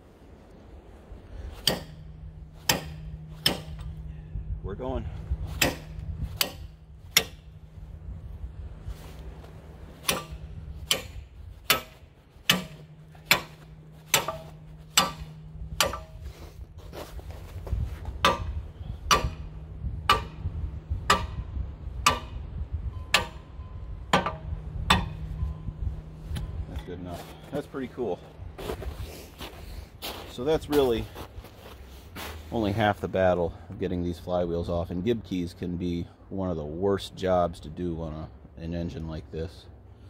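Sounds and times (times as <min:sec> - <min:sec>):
hammer blows on metal: 0:01.4 - 0:28.3.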